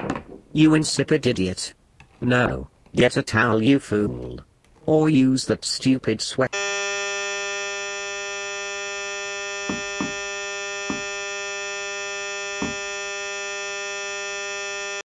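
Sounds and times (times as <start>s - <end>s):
steady electronic buzz: 6.6s - 15.0s
knocking on cardboard: 9.7s - 10.2s, 10.9s - 11.1s, 12.6s - 12.8s.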